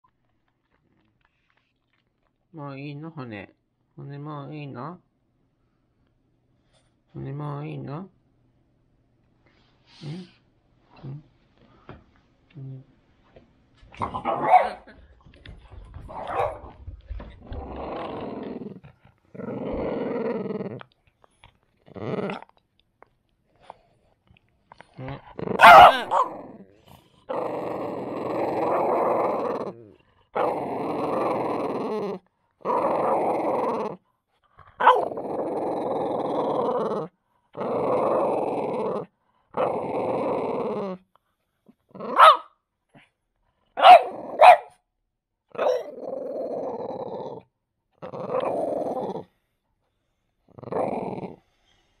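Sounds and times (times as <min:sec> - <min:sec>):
dog growling: 0:13.9 - 0:22.6, 0:24.7 - 0:41.1, 0:41.7 - 0:42.4, 0:43.8 - 0:44.7, 0:45.5 - 0:49.5, 0:50.4 - 0:52.0
dog barking: 0:14.2 - 0:14.9, 0:16.1 - 0:16.8, 0:25.6 - 0:26.4, 0:34.8 - 0:35.1, 0:42.2 - 0:42.5, 0:43.8 - 0:44.8, 0:45.6 - 0:45.9.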